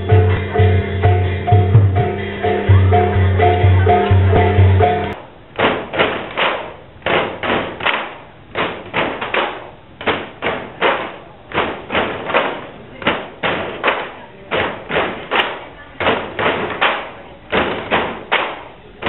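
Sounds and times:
traditional music with steady beat: 0.0s - 18.8s
bamboo poles knocking: 5.6s - 18.7s.

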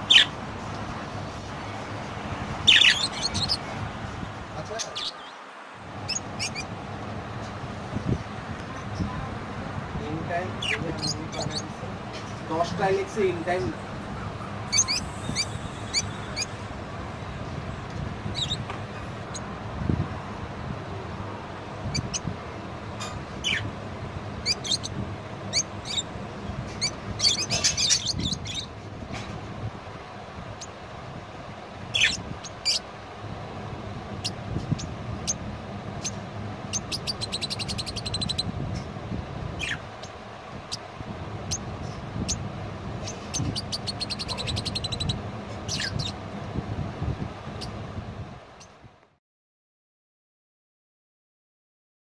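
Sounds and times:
budgerigars chirping: 0.0s - 0.4s, 2.6s - 3.7s, 6.0s - 6.8s, 10.4s - 11.8s, 12.8s - 16.6s, 18.3s - 18.6s, 21.9s - 22.3s, 23.0s - 23.7s, 24.4s - 28.7s, 31.9s - 32.8s, 36.0s - 38.5s, 39.6s - 40.8s, 43.0s - 46.2s
whistled bird calls: 14.3s - 16.6s.

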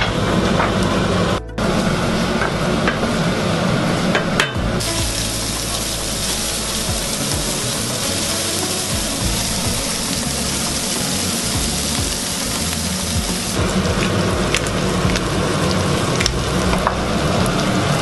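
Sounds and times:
shrimp sizzling in oil: 4.8s - 18.0s
vegetables frying in pan: 4.8s - 18.0s.

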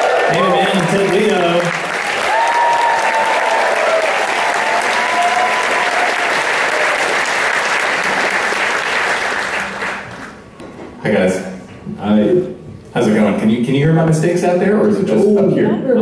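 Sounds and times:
audience applauding and cheering: 0.0s - 10.5s.

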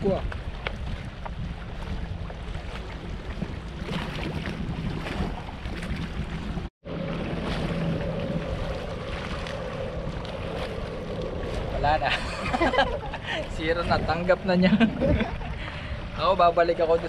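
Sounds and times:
wind buffeting microphone: 0.0s - 17.0s
steady low drone: 6.8s - 16.2s.

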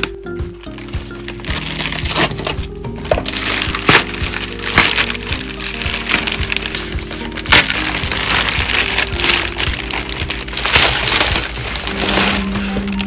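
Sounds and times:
plastic packaging crinkling: 0.0s - 13.0s
soft background music: 0.0s - 13.0s
sharp loud crackle: 3.2s - 13.0s.

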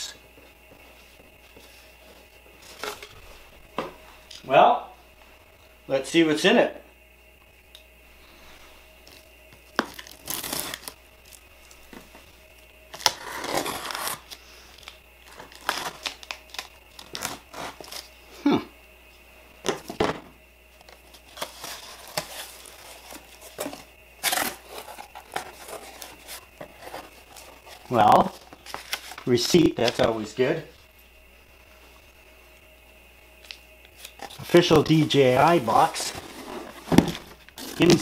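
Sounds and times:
packing tape ripping off cardboard: 9.8s - 11.0s, 12.9s - 18.1s, 21.3s - 29.2s.

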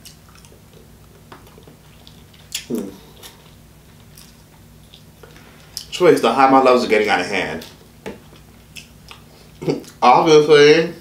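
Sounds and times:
person chewing: 0.0s - 5.9s, 7.6s - 10.0s.

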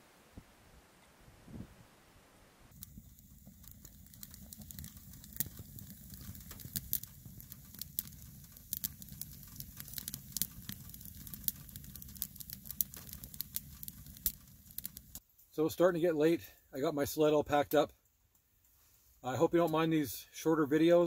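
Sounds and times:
low rush of fire: 0.0s - 15.2s
wood fire crackling and popping: 2.7s - 18.5s.

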